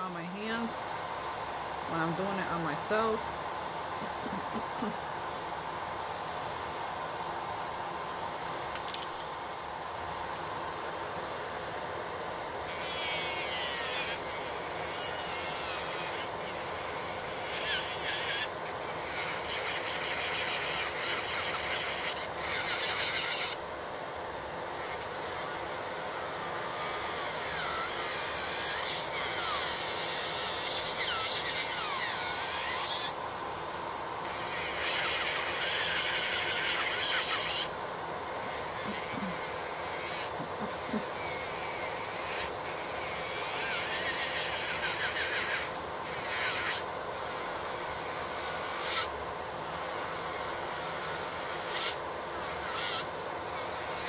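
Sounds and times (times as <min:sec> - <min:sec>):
dust collector fan whir: 0:00.0 - 0:54.0
nail drill grinding: 0:12.6 - 0:23.6, 0:24.8 - 0:33.2, 0:34.2 - 0:37.7, 0:38.3 - 0:47.3, 0:48.1 - 0:54.0.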